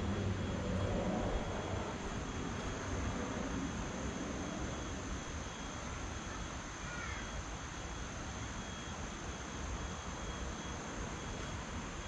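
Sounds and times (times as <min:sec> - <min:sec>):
insect tones: 0:00.0 - 0:12.0.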